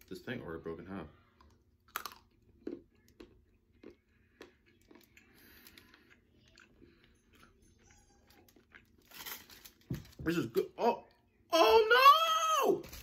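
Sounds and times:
chewing chocolate with faint crunches: 1.2 - 9.2.

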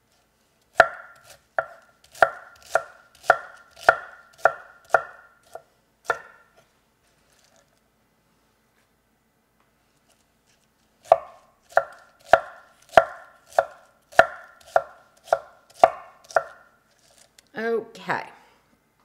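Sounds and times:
knife chopping on cutting board: 0.8 - 6.4, 11.0 - 16.6.

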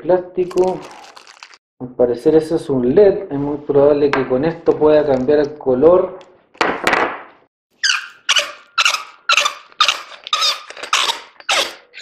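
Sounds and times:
flashlight threads squeaking: 7.8 - 12.0.

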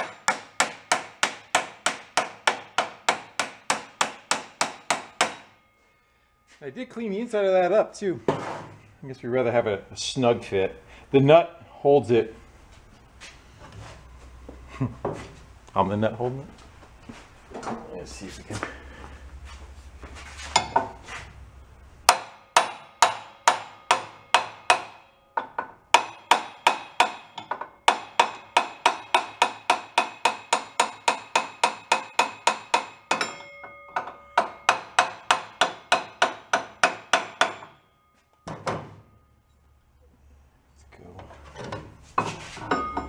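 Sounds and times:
hammer striking metal bar: 0.0 - 5.8, 20.6 - 21.0, 22.1 - 39.2.

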